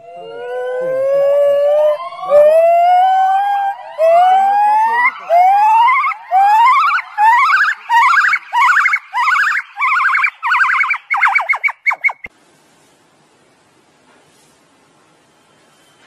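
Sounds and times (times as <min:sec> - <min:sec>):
gibbon whooping call: 0:00.4 - 0:12.3.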